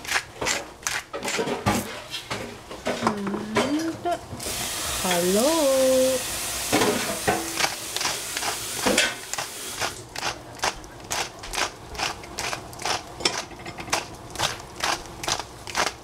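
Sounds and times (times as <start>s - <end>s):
spice grinder crunchy clicks: 7.6s - 16.0s.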